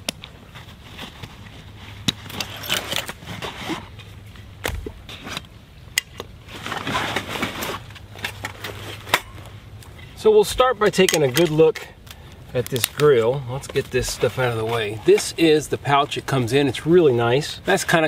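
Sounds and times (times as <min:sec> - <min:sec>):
backpack fabric rustling: 0:06.4 - 0:09.6
buckles clicking: 0:10.8 - 0:15.5.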